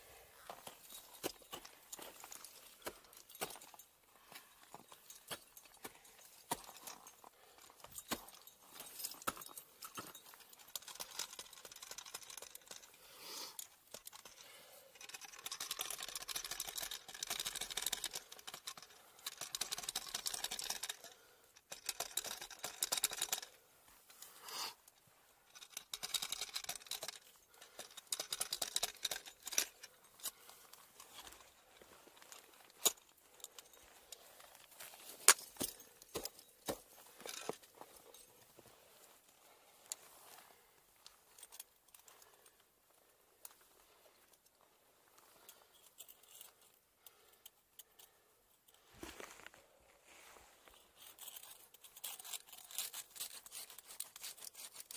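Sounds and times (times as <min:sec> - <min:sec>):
ice tools crackling and scraping ice: 0:48.9 - 0:54.9.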